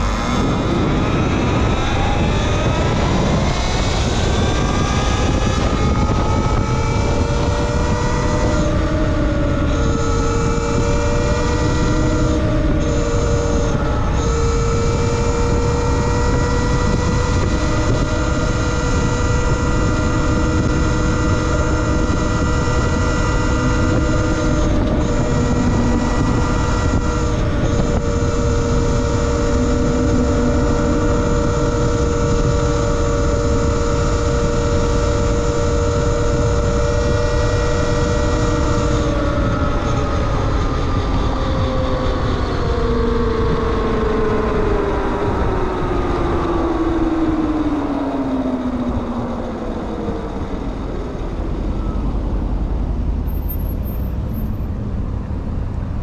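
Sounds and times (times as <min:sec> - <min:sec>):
electric motor whining: 0:00.0 - 0:52.5
wind rumble on microphone: 0:00.0 - 0:56.0.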